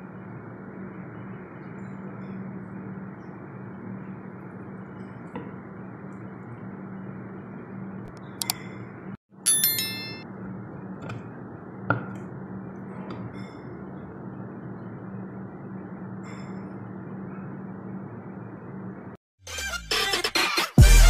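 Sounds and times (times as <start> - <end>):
dishware clinking: 9.5 - 10.2.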